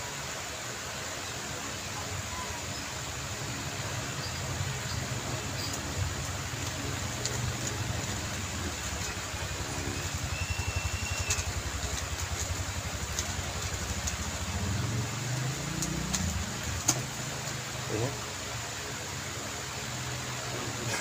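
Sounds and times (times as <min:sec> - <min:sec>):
car engine idling and revving: 0:03.0 - 0:18.6.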